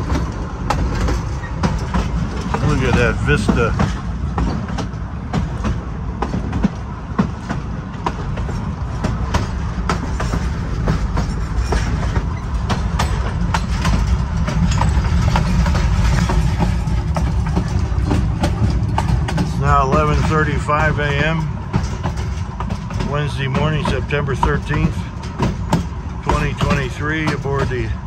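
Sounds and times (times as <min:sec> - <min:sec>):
train car rumbling: 0:00.0 - 0:28.0
wheels clicking over rail joints: 0:00.0 - 0:28.0.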